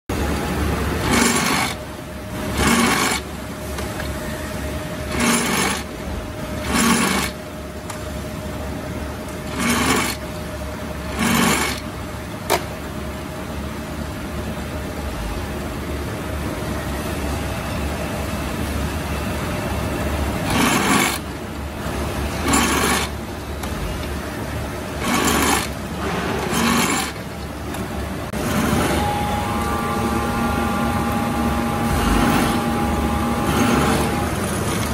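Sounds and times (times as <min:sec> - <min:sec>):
drill press motor humming: 0:24.9 - 0:34.9.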